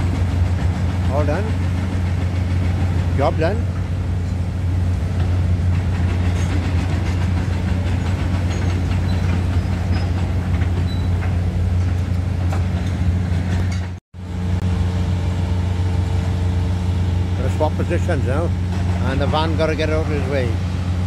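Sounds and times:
diesel machinery drone: 0.0s - 21.0s.

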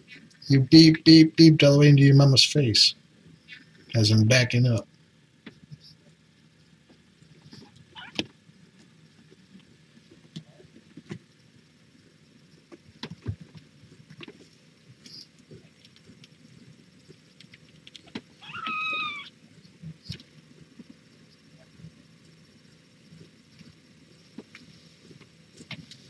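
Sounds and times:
kitten mewing: 7.9s - 8.2s, 18.4s - 19.3s.

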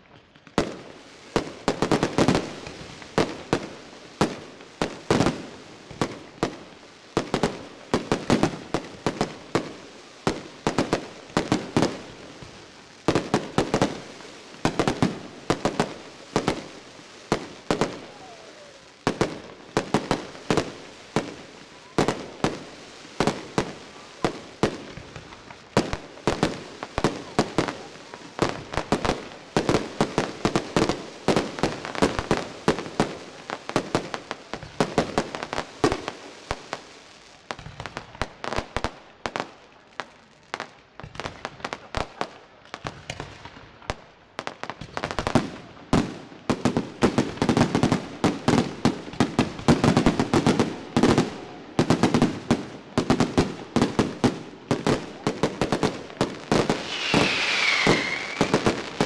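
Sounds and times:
fireworks bangs and crackles: 0.0s - 59.0s.

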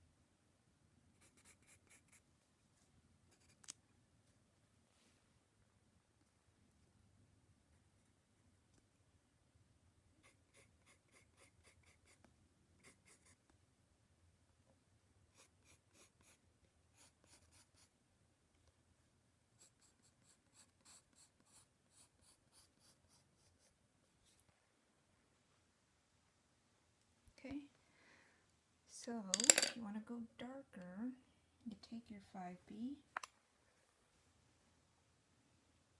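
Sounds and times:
pencil scratching on paper: 1.2s - 2.2s, 10.2s - 13.4s, 15.3s - 16.4s, 17.0s - 17.9s, 19.6s - 24.4s.

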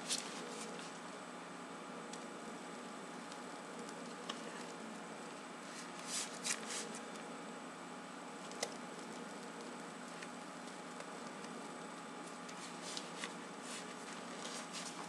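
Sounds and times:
soft crinkles: 12.2s - 15.0s.

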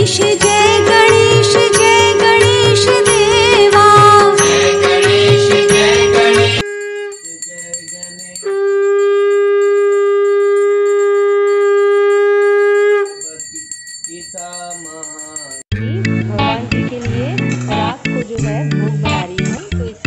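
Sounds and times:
conch shell blown: 0.0s - 7.3s, 8.4s - 13.2s
brass hand bell ringing: 0.0s - 15.7s.

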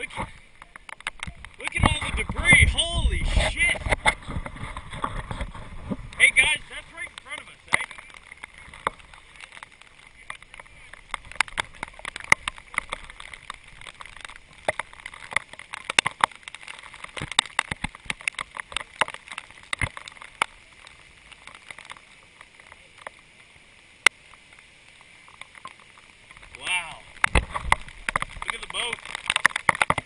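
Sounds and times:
faint hiss: 0.0s - 30.0s
sharp taps and clicks: 0.2s - 2.8s, 5.0s - 20.6s, 27.2s - 30.0s.

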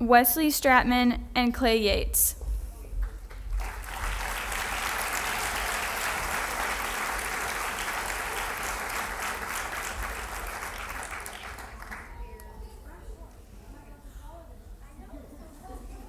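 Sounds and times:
audience applauding: 3.3s - 12.6s.

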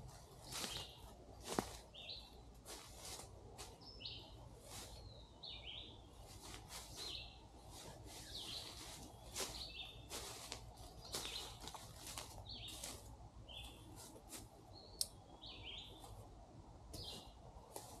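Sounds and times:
bird chirping: 1.9s - 2.5s, 3.8s - 11.8s, 12.4s - 13.9s, 14.7s - 16.2s, 17.0s - 17.4s.

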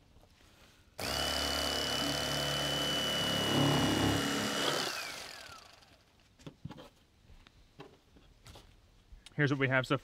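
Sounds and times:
electric knife whining: 1.0s - 6.0s
motor winding down: 1.0s - 6.0s.

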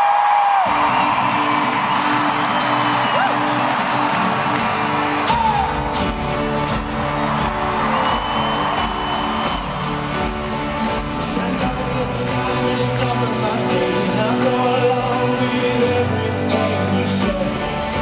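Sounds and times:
crowd whooping and cheering: 0.0s - 11.8s
bass: 0.1s - 18.0s
high whistle from crowd: 0.4s - 3.9s, 7.3s - 10.2s
strummed guitars: 0.6s - 18.0s.

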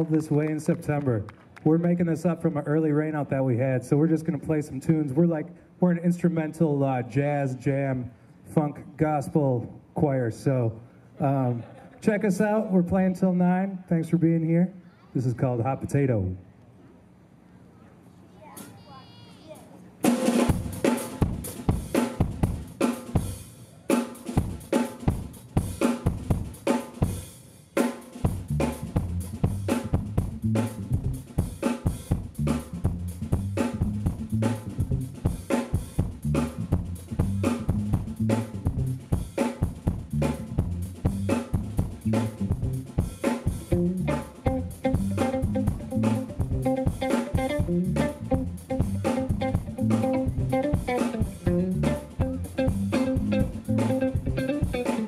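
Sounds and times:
drum kit groove: 20.0s - 55.0s
jazz-funk band playing: 20.0s - 55.0s
electric bass: 28.3s - 55.0s.

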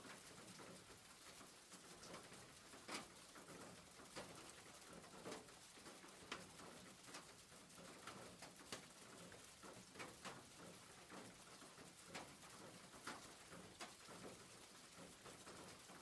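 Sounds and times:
rain falling on a roof: 0.0s - 16.0s.

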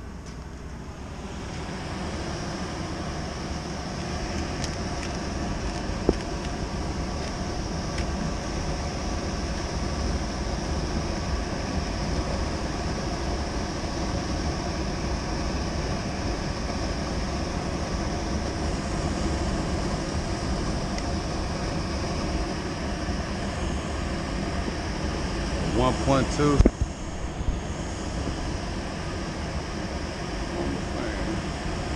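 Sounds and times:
blower air rush and motor hum: 0.0s - 31.9s.

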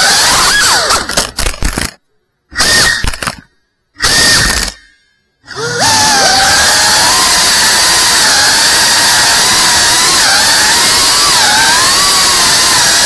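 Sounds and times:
drone propellers whining: 4.0s - 13.0s.

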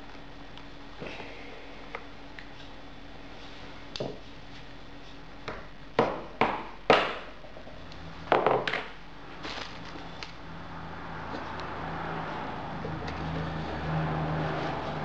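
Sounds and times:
knocks on hard worktop: 5.5s - 7.3s, 8.3s - 8.9s.

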